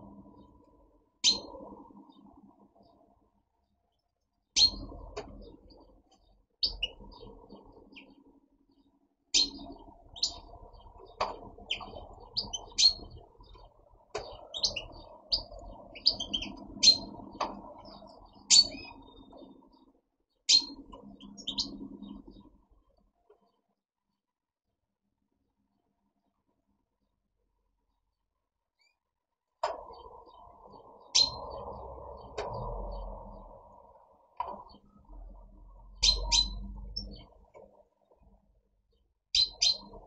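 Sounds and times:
goldfinches chirping: 0.0 - 3.2, 3.9 - 22.6, 29.8 - 37.6, 39.3 - 40.0.

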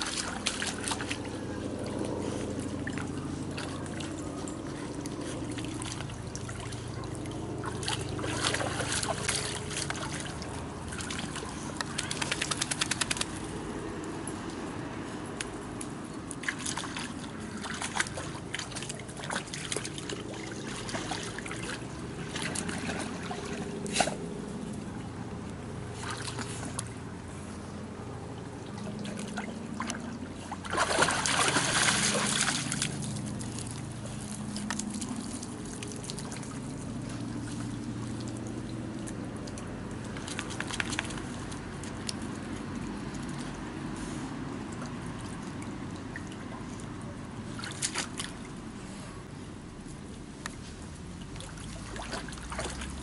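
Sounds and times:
water trickling and sloshing: 0.0 - 53.0
rush of water: 28.6 - 39.4, 50.1 - 53.0.

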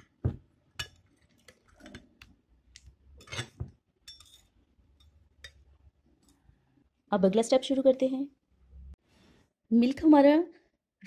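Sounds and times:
metal spatula scraping glass bowl: 3.2 - 4.5.

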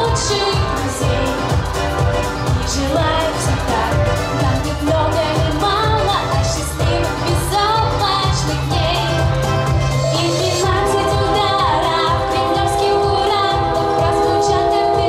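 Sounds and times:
girls singing into microphones: 0.0 - 1.6, 10.1 - 15.0
pop backing music: 0.0 - 15.0.

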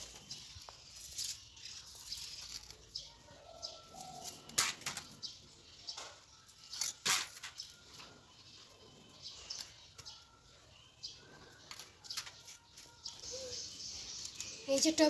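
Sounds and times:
trowel scraping garden soil: 0.0 - 3.1, 3.8 - 5.3, 6.7 - 8.0.

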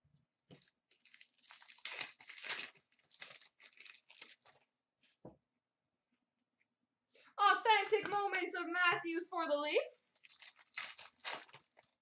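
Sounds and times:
wrapper crinkling and tearing: 0.6 - 4.7, 10.1 - 12.0.

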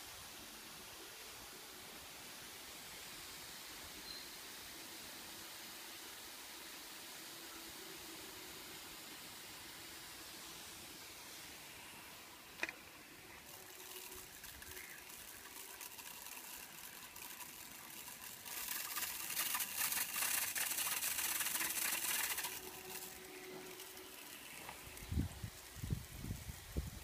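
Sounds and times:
water spraying: 0.0 - 27.0
rustle of wet wings: 13.2 - 26.5.

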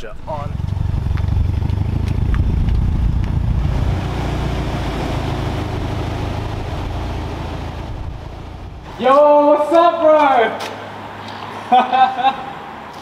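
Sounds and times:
turbocharged car engine running: 0.0 - 9.0.

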